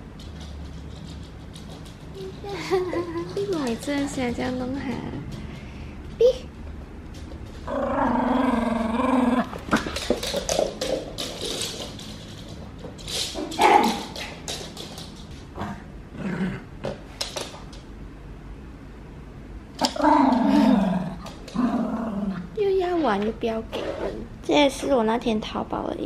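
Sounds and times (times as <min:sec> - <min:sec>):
small dog growling: 0:07.6 - 0:09.9, 0:15.6 - 0:16.8, 0:19.8 - 0:22.5.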